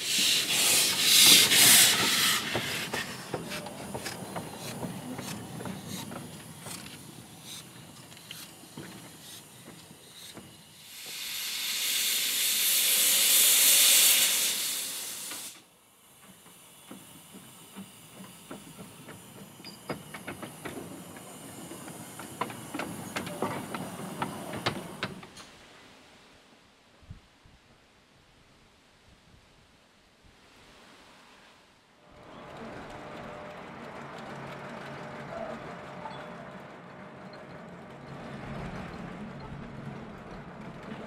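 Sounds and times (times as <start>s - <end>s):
steam locomotive hissing steam: 0.0s - 25.6s.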